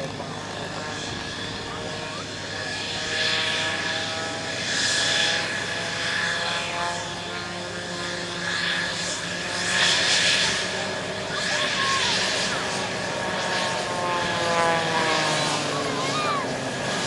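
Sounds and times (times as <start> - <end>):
jet engine turbine whine: 0.0 - 17.0
rushing jet noise: 9.2 - 17.0.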